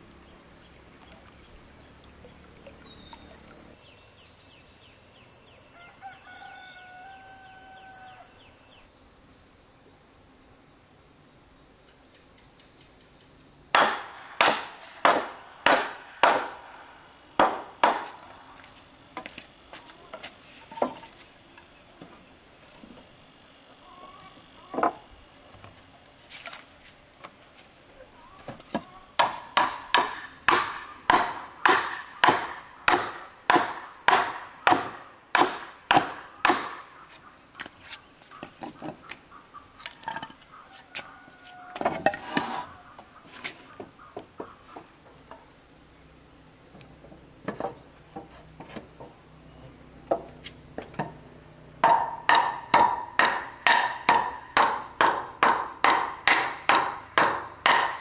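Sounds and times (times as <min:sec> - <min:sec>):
wooden mallet knocking on timber: 0:51.8 - 0:58.0.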